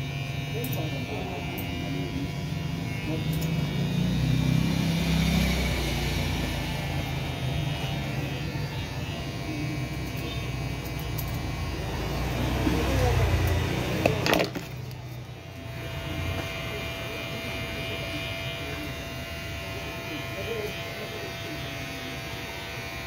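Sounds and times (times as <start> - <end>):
motor vehicle passing: 1.9 - 16.8.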